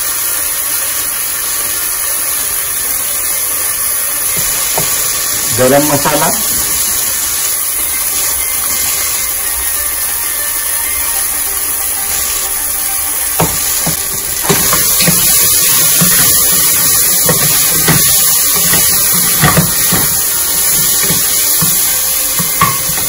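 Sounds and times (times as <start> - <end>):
food sizzling in oil: 0.0 - 23.0.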